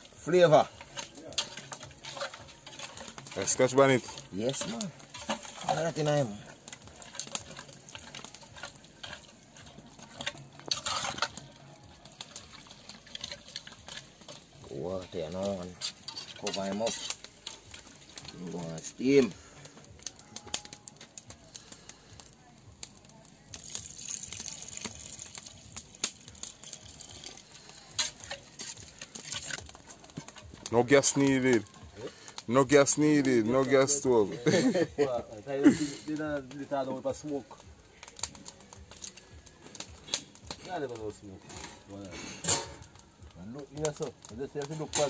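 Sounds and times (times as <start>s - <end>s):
meat mixed by hand: 0.0s - 20.4s
metal spoon stirring in a pot: 0.0s - 45.0s.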